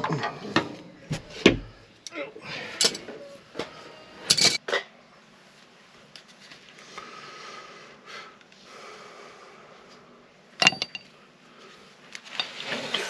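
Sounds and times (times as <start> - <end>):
breathing: 1.7 - 2.9, 6.8 - 10.0.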